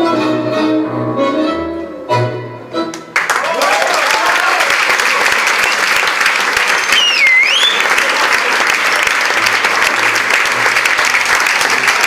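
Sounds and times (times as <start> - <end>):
audience clapping: 2.9 - 12.0
sliding whistle: 6.8 - 7.9.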